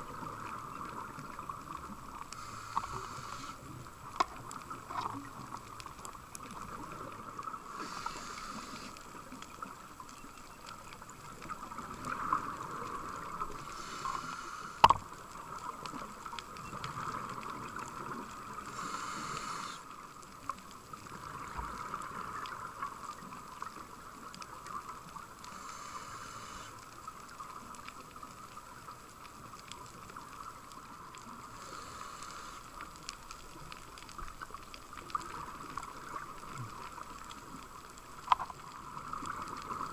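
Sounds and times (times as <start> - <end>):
exhaled bubbles underwater: 0.0 - 19.8, 20.4 - 25.7, 33.3 - 39.9
steady regulator hiss: 1.8 - 4.4, 7.4 - 9.2, 13.0 - 15.5, 18.5 - 20.0, 25.4 - 27.0, 31.4 - 33.0.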